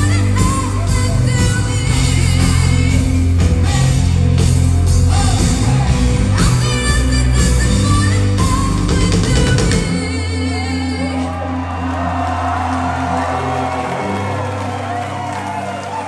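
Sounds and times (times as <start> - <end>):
woman singing lead: 0.0 - 12.2
live rock band: 0.0 - 16.0.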